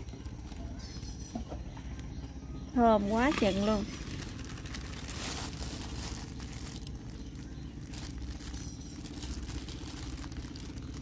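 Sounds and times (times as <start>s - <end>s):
steady low hum: 0.0s - 11.0s
plastic glove crinkling: 3.1s - 11.0s.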